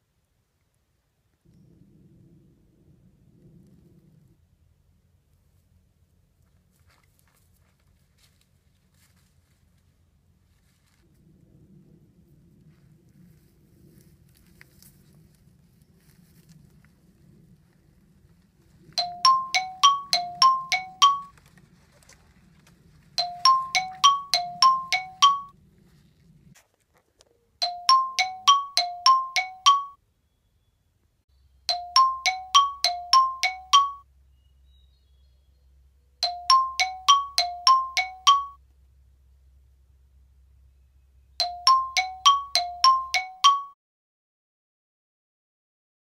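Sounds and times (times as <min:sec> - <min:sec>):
ringing bell-like notes: 0:19.0 - 0:21.3, 0:23.2 - 0:25.5, 0:27.6 - 0:30.0, 0:31.7 - 0:34.1, 0:36.2 - 0:38.6, 0:41.4 - 0:43.8.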